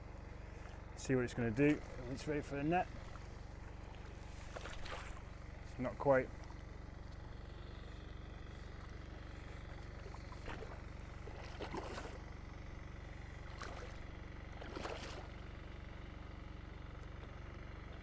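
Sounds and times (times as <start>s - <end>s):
steady low hum: 0.0s - 18.0s
fish splashing in water: 2.9s - 5.7s, 6.3s - 15.9s.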